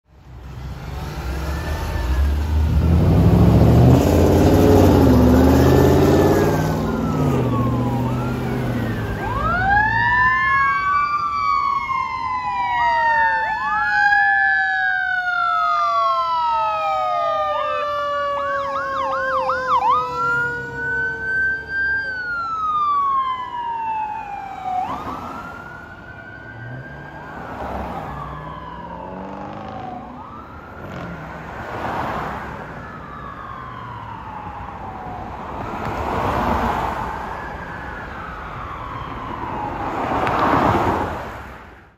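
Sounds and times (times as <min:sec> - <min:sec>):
emergency sirens wailing: 0:00.6 - 0:41.8
siren fast yelp: 0:06.1 - 0:27.4.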